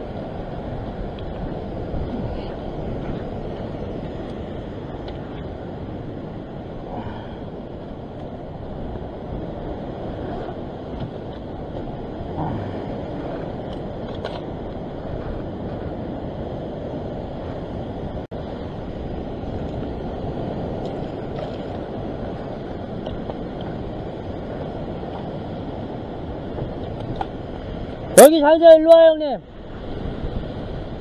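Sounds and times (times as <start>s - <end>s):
wind on microphone: 0.0s - 31.0s.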